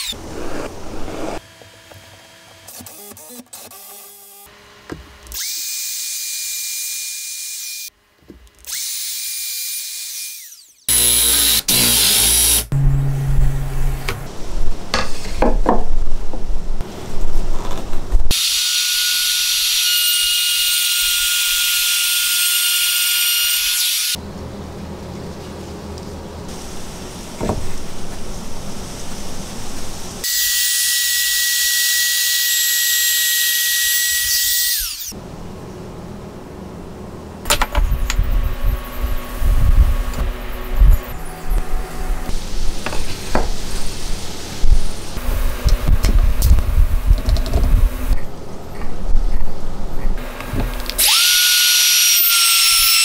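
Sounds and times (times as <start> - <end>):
power tool motor whining: 8.7 - 12.9, 50.9 - 53.0
loud wood cutting bursts: 8.7 - 14.3, 51.0 - 53.0
low even hum: 12.7 - 18.2.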